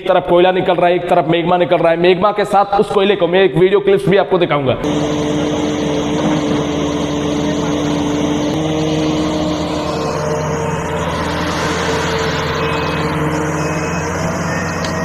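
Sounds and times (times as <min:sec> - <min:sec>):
excavator diesel engine running: 0:04.8 - 0:15.0.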